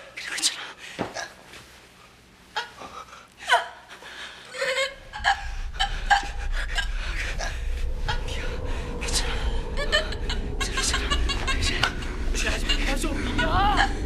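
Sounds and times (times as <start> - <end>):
low rumbling drone: 4.7 - 14.0.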